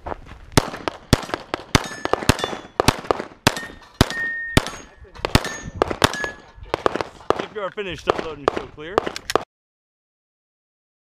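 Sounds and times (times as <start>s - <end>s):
handgun shots: 0.6s - 7.5s, 8.1s - 9.5s
steel targets ringing: 1.8s - 2.8s, 3.5s - 6.6s.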